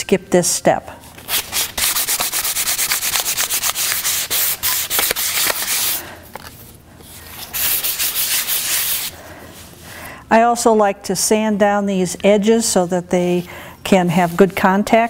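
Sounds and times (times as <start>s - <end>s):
sandpaper scrubbing on wood: 1.3s - 6.0s, 7.5s - 9.2s.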